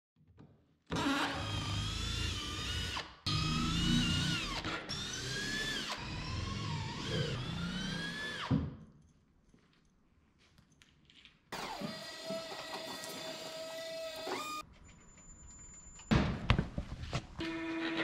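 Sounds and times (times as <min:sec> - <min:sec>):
cordless drill motor whining: 0:11.6 - 0:14.6.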